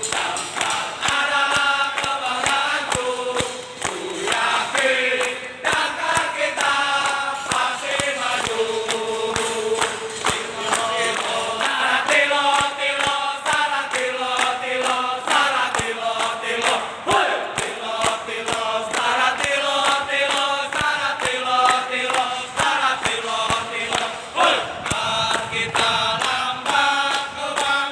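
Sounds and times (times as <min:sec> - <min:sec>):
hands clapping rhythmically: 0:00.0 - 0:27.9
men chanting in unison: 0:00.0 - 0:27.9.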